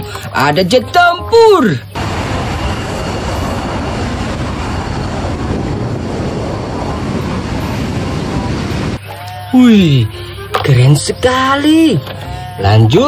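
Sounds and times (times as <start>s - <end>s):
jet engine rushing: 2.0s - 9.0s.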